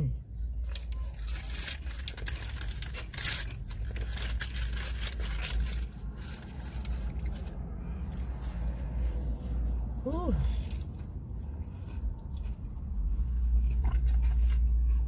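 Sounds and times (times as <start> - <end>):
low steady rumble: 0.0 - 15.0
paper crinkling and rustling: 0.6 - 9.2.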